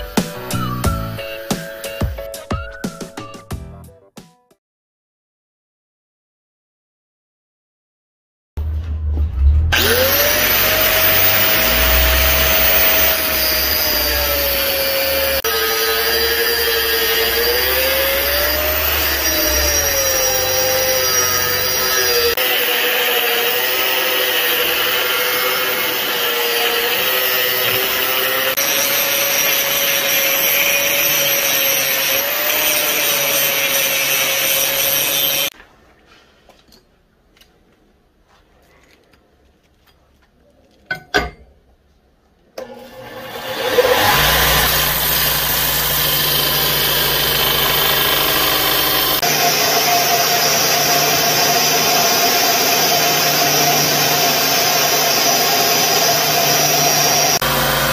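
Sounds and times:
belt grinder grinding steel: 0:09.7 - 0:35.5, 0:42.9 - 0:57.9
angle grinder cutting steel: 0:09.7 - 0:35.6, 0:42.6 - 0:57.9.

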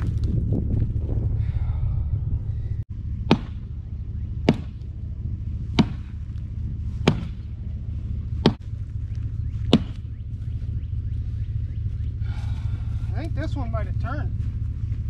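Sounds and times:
low rumble: 0:00.0 - 0:15.0
hammer striking wheel: 0:03.3 - 0:03.7, 0:04.4 - 0:04.9, 0:07.0 - 0:07.5.

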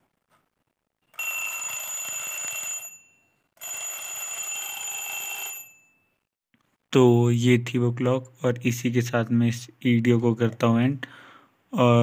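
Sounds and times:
alarm clock bells ringing: 0:01.1 - 0:06.2.

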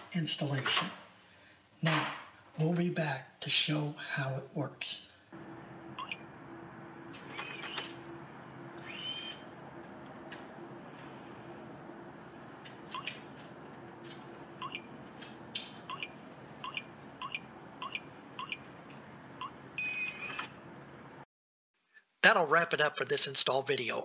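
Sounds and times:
keypad beeps: 0:06.0 - 0:06.3, 0:12.9 - 0:13.2, 0:14.6 - 0:15.0, 0:15.9 - 0:18.7, 0:19.4 - 0:20.6.

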